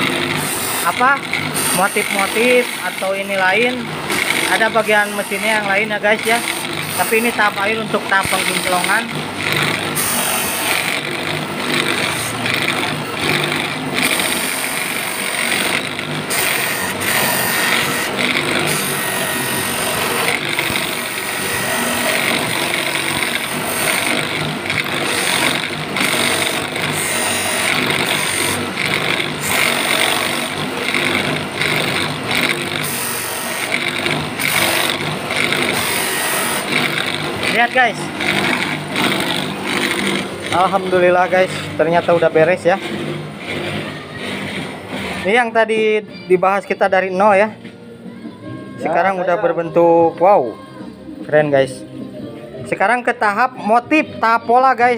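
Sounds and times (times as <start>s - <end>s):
polishing wheel buffing a ring: 0.0s - 41.6s.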